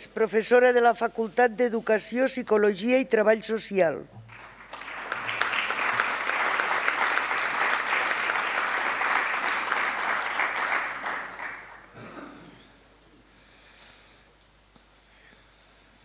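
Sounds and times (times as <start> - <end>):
audience applause: 4.3 - 11.9.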